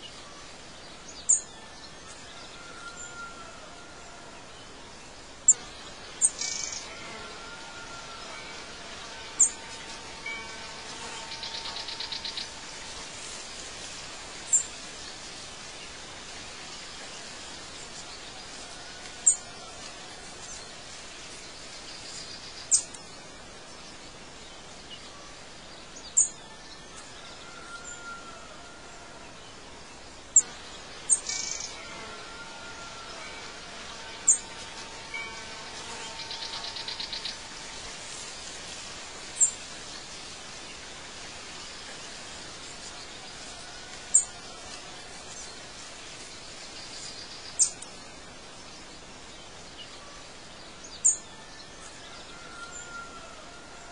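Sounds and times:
steady hiss: 0.0 - 53.9.

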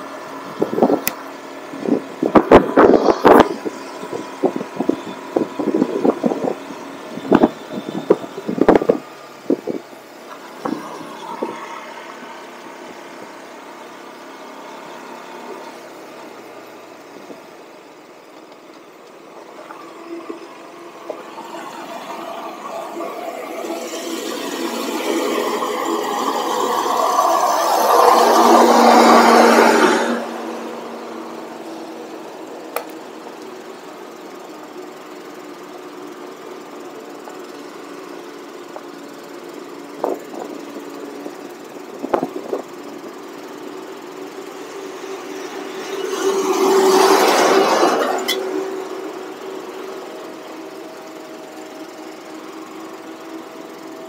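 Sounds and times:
paving machine engine: 0.0 - 54.0
truck engine running: 0.0 - 54.0
wind buffeting microphone: 1.8 - 9.9.

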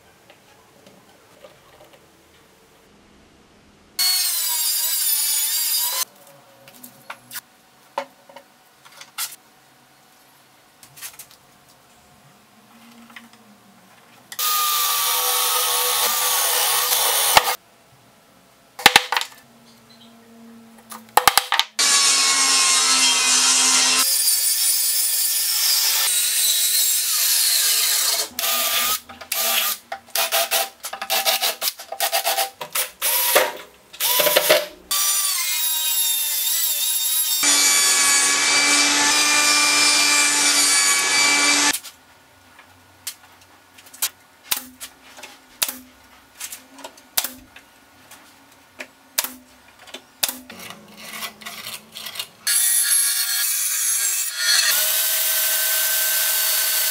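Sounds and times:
circular saw cutting board: 14.4 - 17.6, 21.8 - 41.8
saw cutting wooden strip: 14.4 - 17.6, 21.8 - 41.8.

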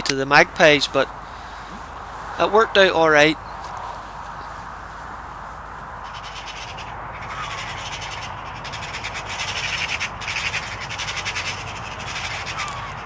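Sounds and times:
magpie chattering: 6.0 - 13.0.

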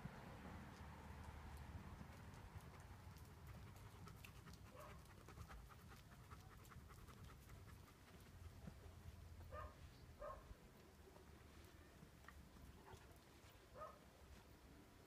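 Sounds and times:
dog panting: 2.1 - 8.9.

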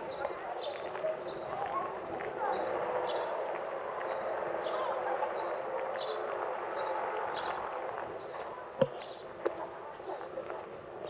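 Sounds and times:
murmur of people: 0.0 - 11.0
footsteps on hard ground: 8.8 - 9.5.

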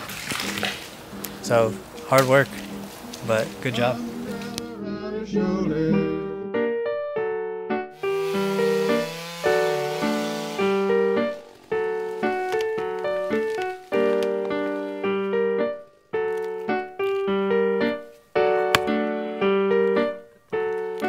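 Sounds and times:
slow keyboard tune: 1.0 - 21.0.

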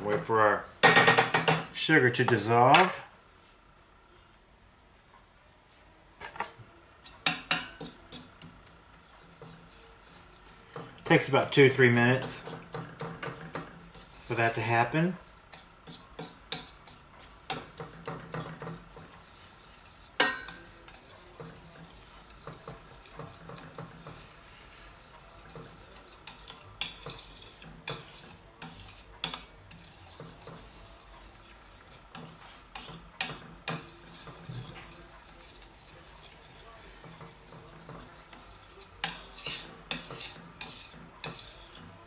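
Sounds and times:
spoon scraping and clinking in pan: 7.0 - 8.5, 15.5 - 42.0.

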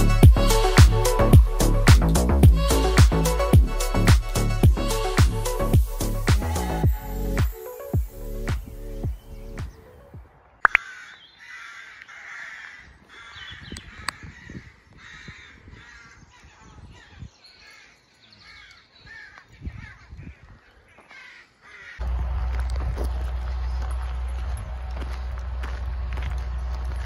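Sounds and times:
crows cawing: 10.7 - 16.6, 17.6 - 22.2
loud low rumble: 22.0 - 27.0.

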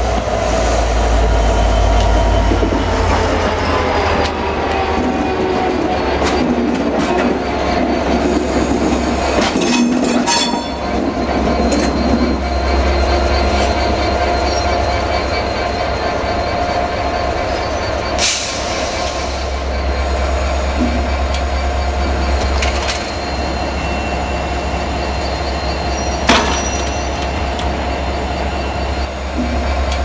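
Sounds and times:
diesel locomotive engine throbbing: 0.0 - 30.0.

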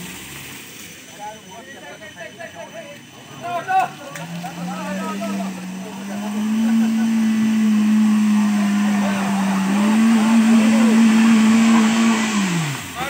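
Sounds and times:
van engine revving in mud: 0.0 - 0.7, 3.9 - 13.0
men calling out: 2.0 - 13.0.

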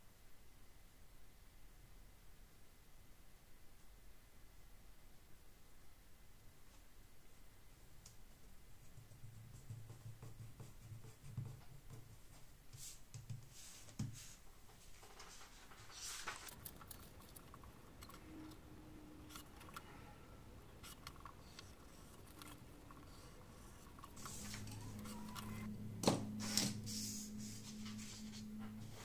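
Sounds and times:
faint low hum: 0.0 - 29.0
paper sheets rustling and tapping: 8.9 - 16.6.

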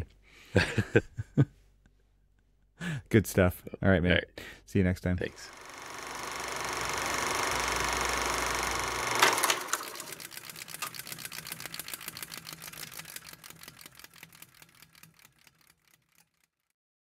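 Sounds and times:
rapid mechanical clicking: 5.4 - 16.7.

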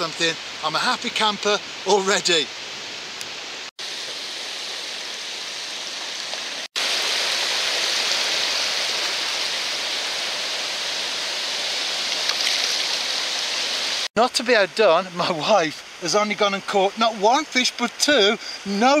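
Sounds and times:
small waves washing on shore: 3.8 - 14.1.

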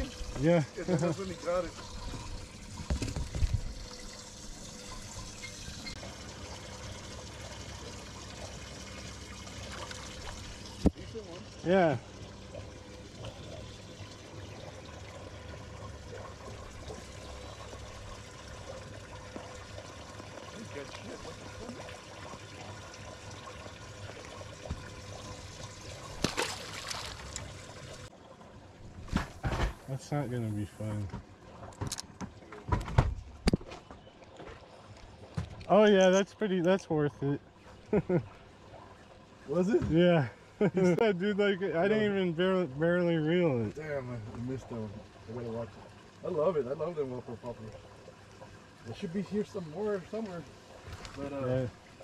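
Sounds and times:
water trickling and pouring: 0.0 - 32.7, 34.0 - 52.0
fish splashing: 12.2 - 28.1.

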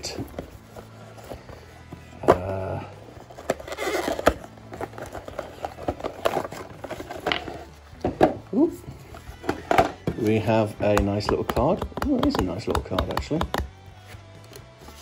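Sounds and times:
cardboard flap rustling: 3.2 - 8.4.

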